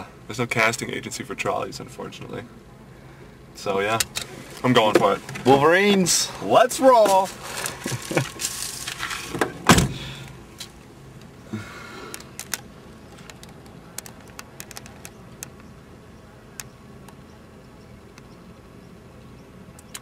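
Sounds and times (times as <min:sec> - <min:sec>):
car door slamming: 0:09.3 - 0:10.3.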